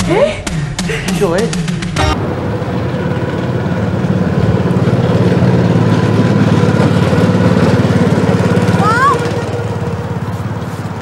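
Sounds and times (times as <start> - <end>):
go-kart engine buzzing: 2.0 - 11.0.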